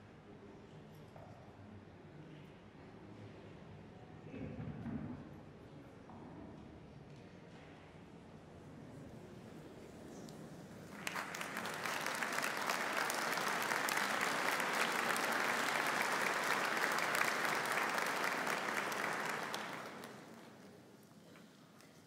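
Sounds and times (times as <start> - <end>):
audience applauding: 10.8 - 20.8.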